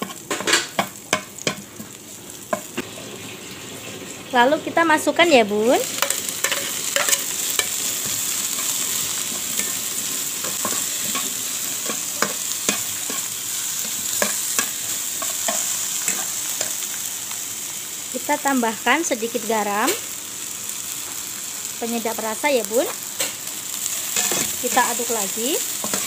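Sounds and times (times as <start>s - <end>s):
okra sizzling in hot oil: 0.0s - 26.0s
metal spatula scraping pan: 24.0s - 25.0s.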